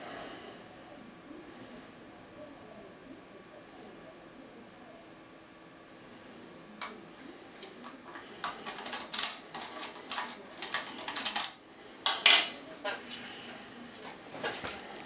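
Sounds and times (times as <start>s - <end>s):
key clicking in lock cylinder: 8.4s - 12.4s.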